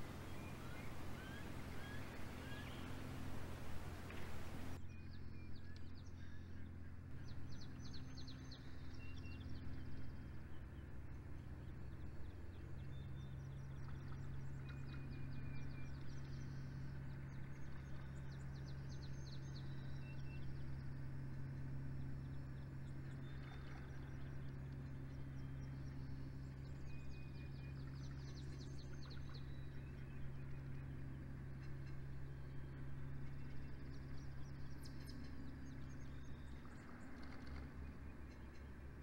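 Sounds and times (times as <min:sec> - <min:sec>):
steady low hum: 0:00.0 - 0:04.8
small birds singing: 0:00.0 - 0:39.0.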